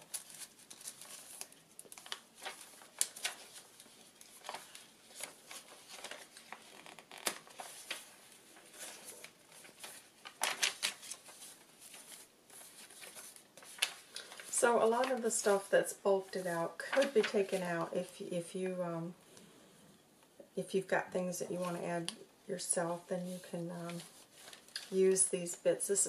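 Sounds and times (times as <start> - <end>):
pages turning: 0.0 - 18.1, 23.3 - 25.0
paper rustling and crinkling: 0.0 - 18.1, 23.0 - 25.2.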